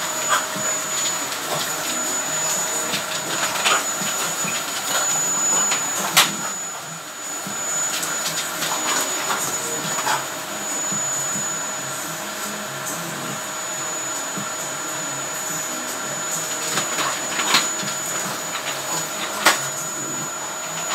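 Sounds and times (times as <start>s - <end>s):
vacuum cleaner whine: 0.0s - 20.9s.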